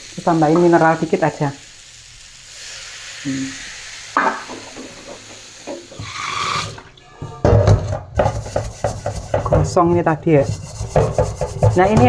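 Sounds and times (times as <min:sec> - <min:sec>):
brush scrubbing wok: 0:02.4 - 0:12.0
tap water running into sink: 0:04.2 - 0:09.6.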